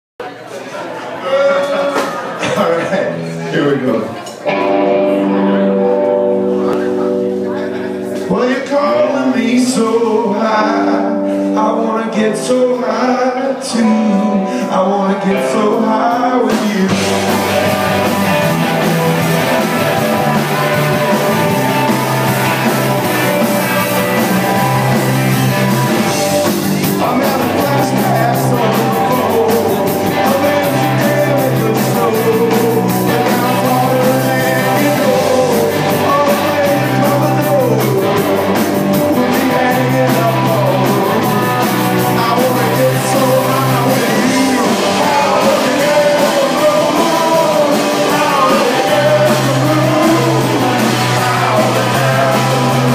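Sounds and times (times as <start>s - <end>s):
electric guitars: 1.6s - 52.9s
bass line: 13.8s - 52.9s
drums and cymbals: 16.5s - 52.9s
sliding melody line: 16.7s - 52.9s.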